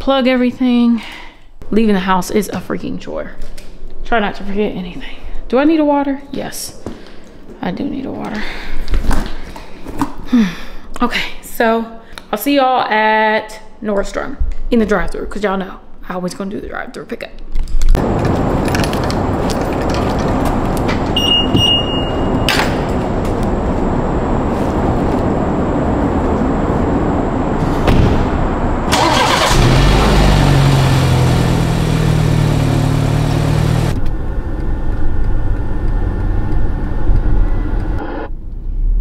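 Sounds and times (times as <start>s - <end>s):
car cabin noise while driving: 18.0s - 39.0s
car engine starting and humming: 18.0s - 39.0s
car noise: 18.0s - 39.0s.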